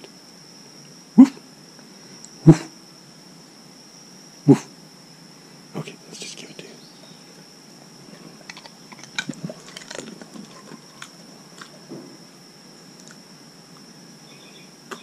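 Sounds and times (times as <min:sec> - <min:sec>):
dog crunching a chip: 0:08.4 - 0:11.8.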